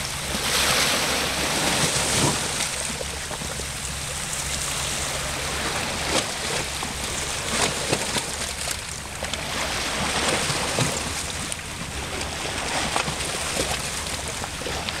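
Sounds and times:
small waves lapping on pebbles: 0.0 - 15.0
clicks and trickles among stones: 7.5 - 9.4.

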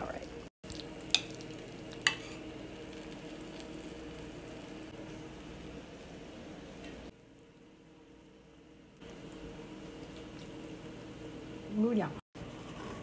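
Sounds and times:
faint kitchen hum: 0.0 - 13.0.

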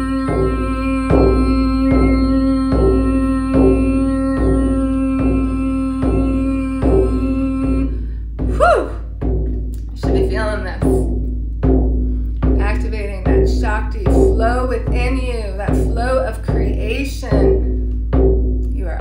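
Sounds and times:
droning tone: 0.0 - 8.7
frame drum beats: 0.0 - 19.0.

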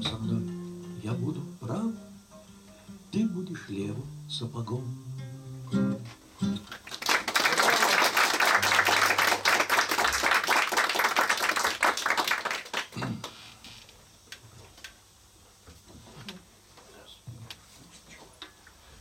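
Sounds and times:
audience applauding: 6.7 - 13.4.

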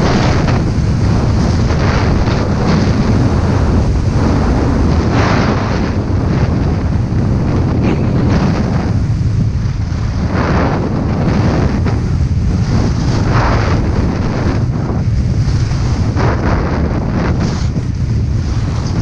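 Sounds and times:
wind buffeting microphone: 0.0 - 19.0
skis scraping snow: 15.3 - 19.0.

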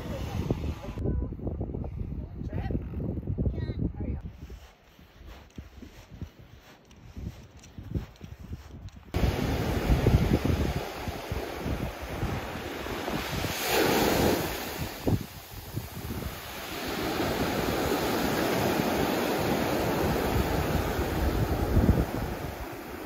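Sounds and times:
wind buffeting microphone: 0.0 - 23.0
small waves breaking on shore: 9.2 - 23.0.

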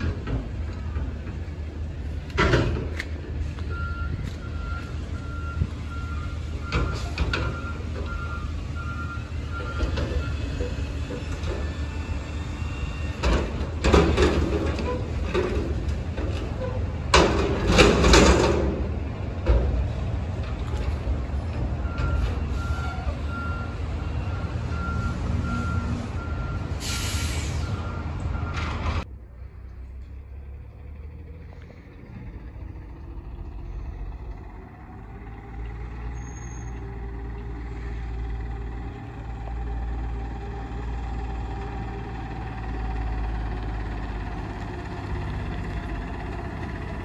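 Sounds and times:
diesel engine running: 0.0 - 47.0
reversing alarm beeping: 3.6 - 10.6, 21.8 - 28.7
trash clattering into truck: 13.2 - 20.5
air brake hiss: 26.7 - 27.8
low engine drone: 28.4 - 40.2.

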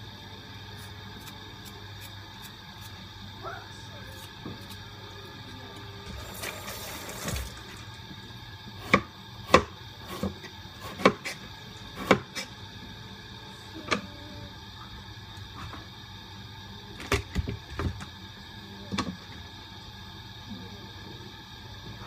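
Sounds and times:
knife chopping on cutting board: 8.9 - 11.4, 12.0 - 12.5.

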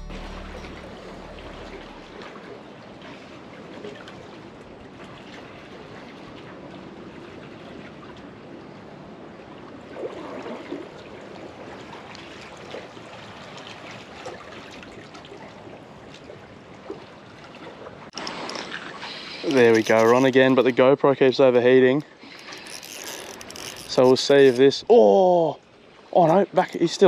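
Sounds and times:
water trickling: 0.0 - 27.0
small clicks: 22.3 - 24.6.

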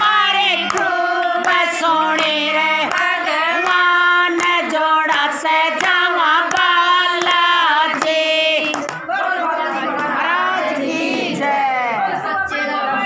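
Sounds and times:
hand claps: 0.0 - 9.1
women singing together: 0.0 - 13.0.

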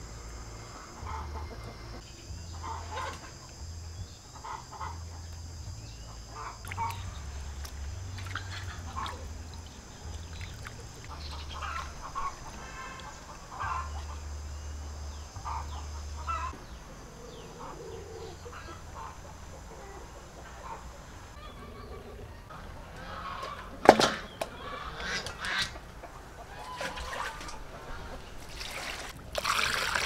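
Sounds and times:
poultry clucking: 0.7 - 3.6, 4.3 - 5.2, 6.0 - 7.3, 7.9 - 28.4.

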